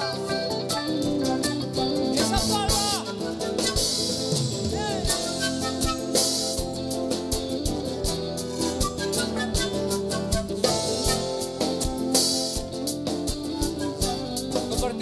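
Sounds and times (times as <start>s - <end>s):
drum kit beat: 0.0s - 15.0s
electric guitars: 0.0s - 15.0s.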